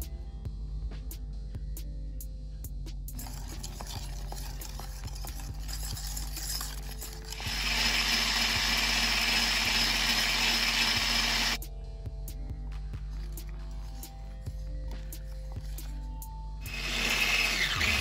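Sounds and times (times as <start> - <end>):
electric mixer whining: 3.2 - 11.6, 16.6 - 18.0.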